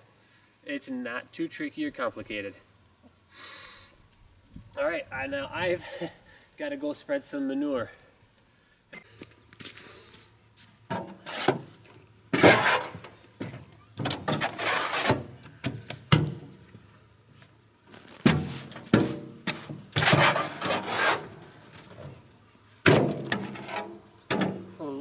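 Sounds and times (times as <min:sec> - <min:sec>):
shovel scraping manure: 0:11.0 - 0:13.2, 0:14.0 - 0:15.4, 0:17.9 - 0:22.0, 0:23.2 - 0:24.6.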